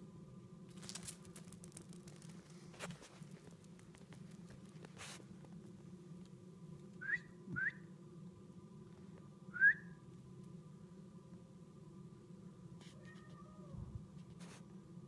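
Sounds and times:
short rising whistles: 0:07.0 - 0:07.9, 0:09.6 - 0:10.0.

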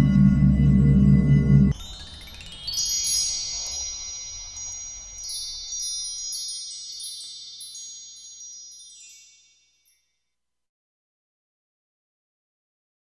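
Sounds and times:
wind chimes ringing: 0:01.7 - 0:10.4.

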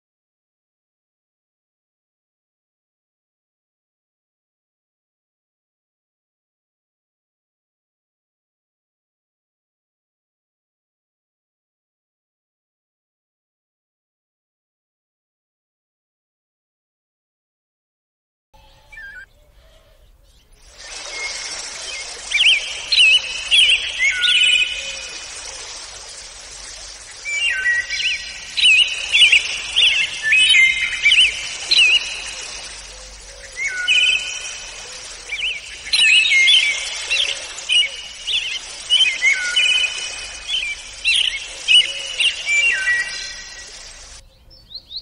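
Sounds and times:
finch song warbling: 0:18.6 - 0:45.0.

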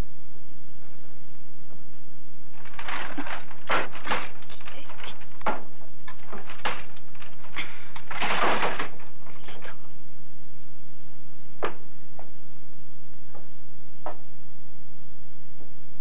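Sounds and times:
sharp knocks: 0:11.6 - 0:12.3.

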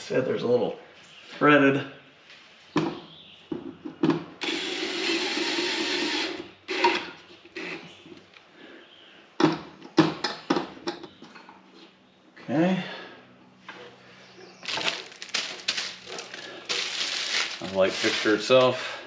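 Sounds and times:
cordless drill driving screw: 0:04.4 - 0:07.8.

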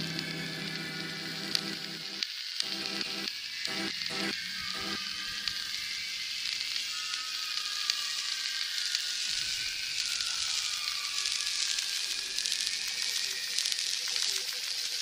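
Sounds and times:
thin tone gliding down: 0:00.0 - 0:07.5
crackling hiss: 0:00.0 - 0:15.0.

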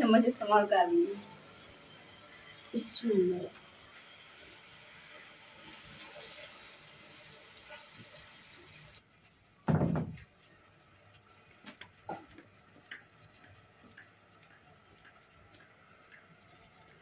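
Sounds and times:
loud thump: 0:09.7 - 0:10.2.

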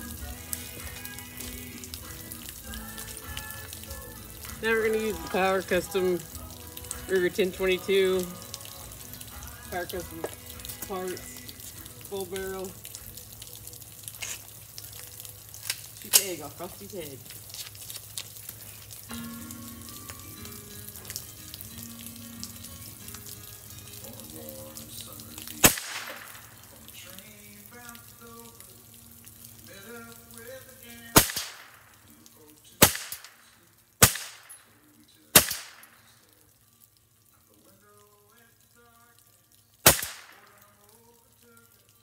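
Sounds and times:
rifle shots with echo: 0:25.6 - 0:26.4, 0:31.2 - 0:31.9, 0:32.8 - 0:33.4, 0:34.0 - 0:34.6, 0:35.4 - 0:36.0, 0:39.9 - 0:40.5.

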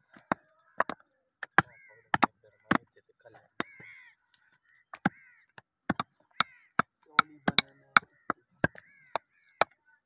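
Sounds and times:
cleaver chopping meat and bone: 0:00.8 - 0:02.9, 0:04.9 - 0:09.8.

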